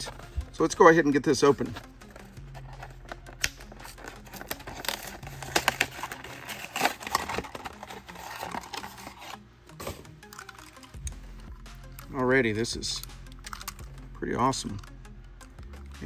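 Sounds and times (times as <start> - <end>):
plastic packaging crinkling and tearing: 2.6 - 9.4.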